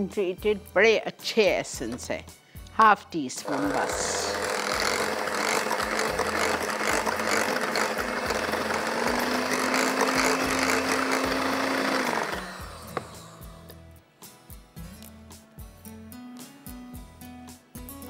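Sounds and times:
soft background music with beat: 0:00.0 - 0:03.3, 0:12.5 - 0:18.0
electric hand mixer running: 0:03.4 - 0:13.6.

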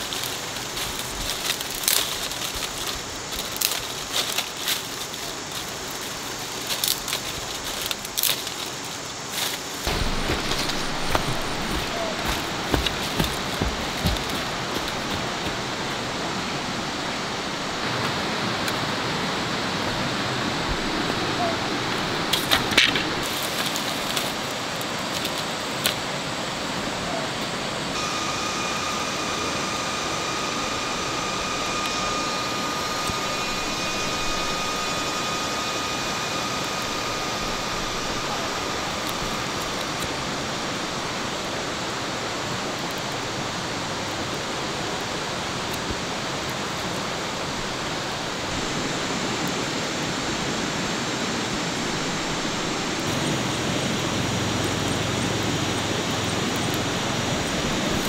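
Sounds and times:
thin high tone: 0:00.0 - 0:17.8, 0:27.9 - 0:41.3
stream water rushing: 0:00.0 - 0:58.0.

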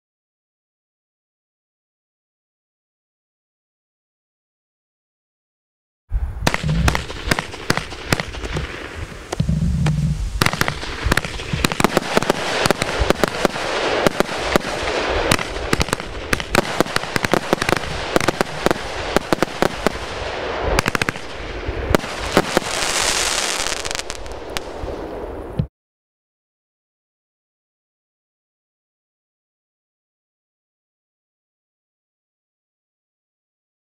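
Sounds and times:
firework crackle: 0:06.4 - 0:25.5
firework cake shots and bursts: 0:06.5 - 0:24.8.

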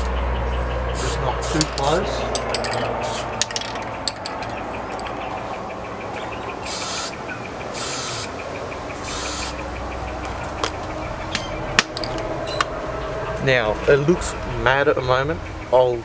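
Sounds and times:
spray paint can hissing: 0:01.0 - 0:01.7, 0:03.0 - 0:03.5, 0:06.7 - 0:07.2, 0:07.8 - 0:08.3, 0:09.0 - 0:09.6.

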